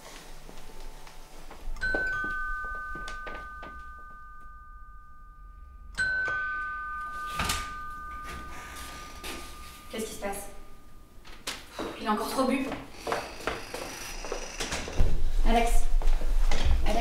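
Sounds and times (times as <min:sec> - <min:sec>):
two-tone doorbell chime: 0:01.6 - 0:11.2.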